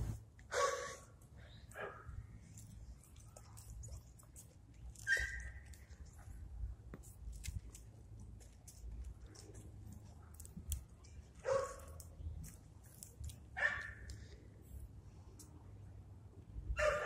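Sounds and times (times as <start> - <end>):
dog barking: 0.5 - 1.0, 1.7 - 2.1, 11.4 - 12.0, 13.6 - 14.0, 16.8 - 17.0.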